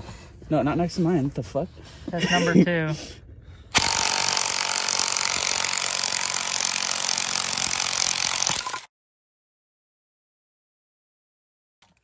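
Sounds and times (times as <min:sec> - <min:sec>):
impact wrench hammering: 0:03.8 - 0:08.8.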